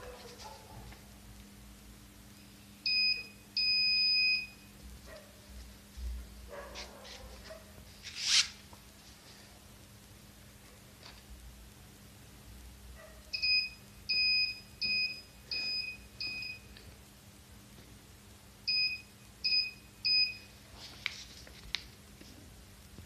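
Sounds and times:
electronic alarm buzzer beeping: 2.8s - 4.7s, 13.4s - 16.7s, 18.7s - 20.5s.

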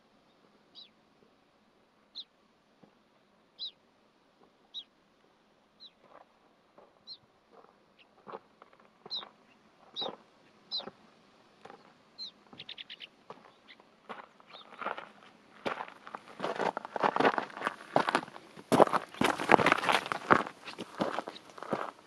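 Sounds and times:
high chirping calls: 0.7s - 1.0s, 3.6s - 3.8s, 4.7s - 4.9s, 7.0s - 7.3s, 9.0s - 11.0s, 11.7s - 13.8s
footsteps: 13.3s - 22.0s.

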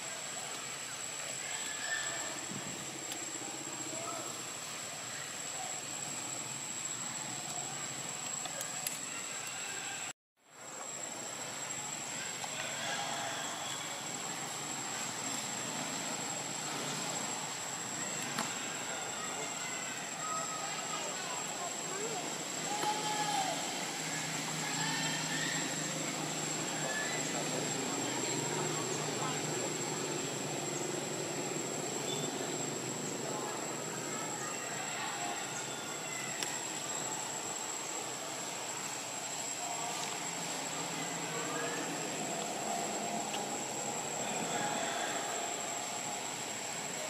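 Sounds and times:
high-pitched steady whine: 0.0s - 47.0s
outdoor background noise: 0.0s - 47.0s
faint click: 8.2s - 9.6s, 36.4s - 36.6s.

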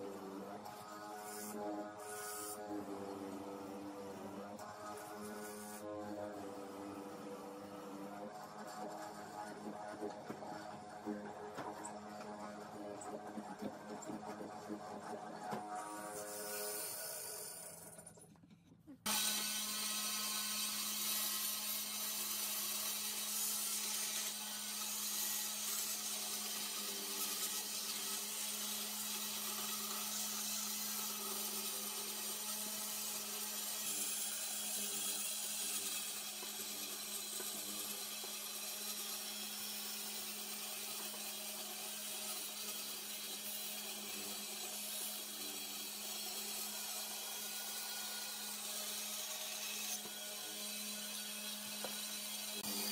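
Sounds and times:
band saw cutting wood: 0.0s - 18.3s, 19.0s - 52.9s.

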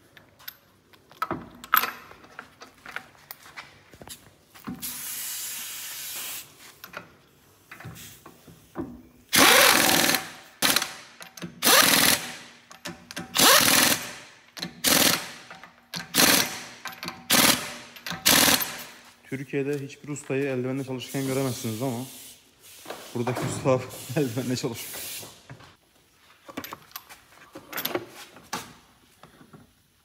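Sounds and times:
pneumatic impact wrench bursts: 4.8s - 6.5s, 9.3s - 12.6s, 13.2s - 19.0s
air hiss: 4.8s - 6.6s, 20.8s - 23.1s, 23.8s - 25.5s.

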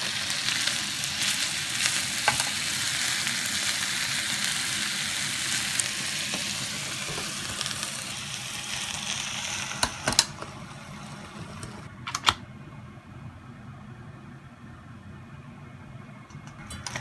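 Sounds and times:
noodles sizzling: 0.0s - 12.0s.

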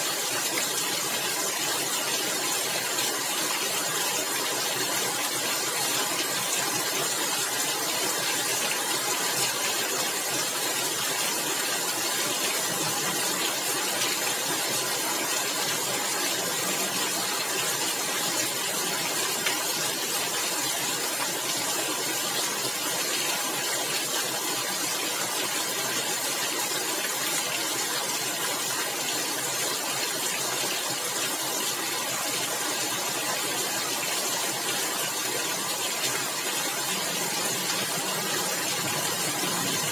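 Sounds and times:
rain on a tiled roof: 0.0s - 39.9s.

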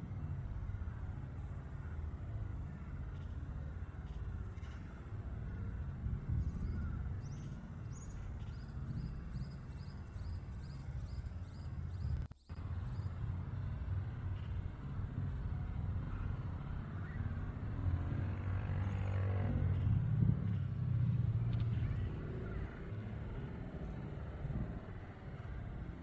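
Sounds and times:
street traffic rumble: 0.0s - 26.0s
vehicle passing close by: 15.6s - 25.7s.

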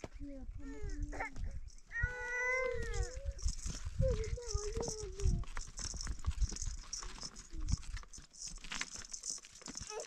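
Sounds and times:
dry twigs crackling and snapping: 2.8s - 10.0s.

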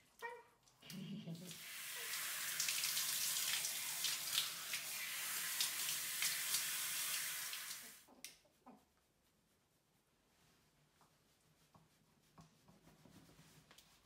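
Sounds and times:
shower spraying water: 0.8s - 8.1s.

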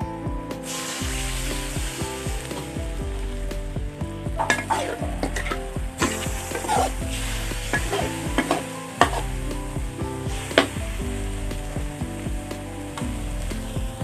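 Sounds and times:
metal ladle scraping wok: 4.4s - 9.7s
meat sizzling in oil: 4.5s - 12.3s.

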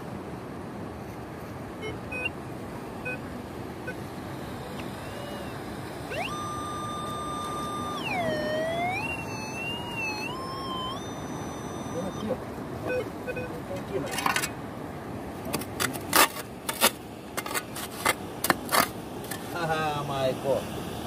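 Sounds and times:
steady background wash: 0.0s - 21.0s
metal detector tone: 1.8s - 2.3s, 4.7s - 13.5s.

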